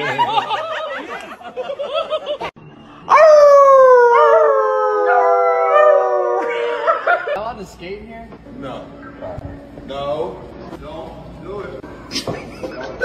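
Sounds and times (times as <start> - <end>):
people howling: 2.7 - 7.3
dog howling: 3.1 - 7.0.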